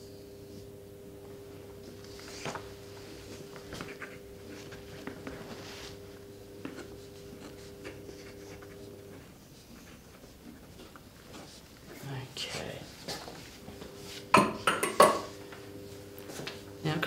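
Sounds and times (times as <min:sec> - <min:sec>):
low electrical hum: 0:00.0 - 0:17.0
cloth rustling: 0:02.0 - 0:06.1.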